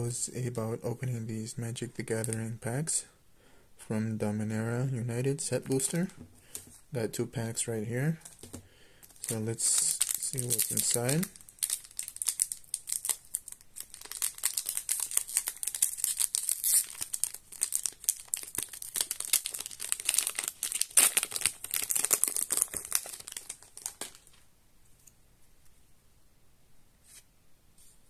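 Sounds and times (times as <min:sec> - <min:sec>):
foil wrapper crinkling: 0:08.2 - 0:24.4.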